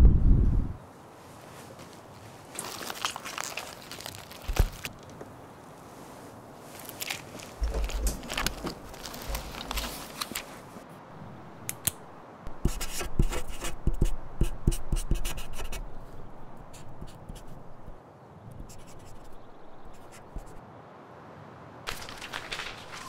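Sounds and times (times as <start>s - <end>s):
pen scratching on paper: 12.6s - 15.8s, 18.6s - 20.6s.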